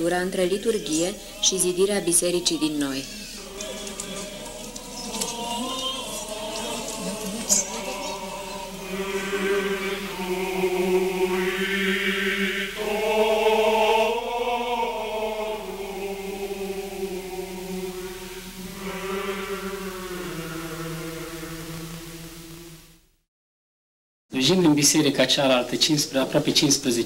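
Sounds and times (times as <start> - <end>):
choir chanting: 0.0 - 22.9.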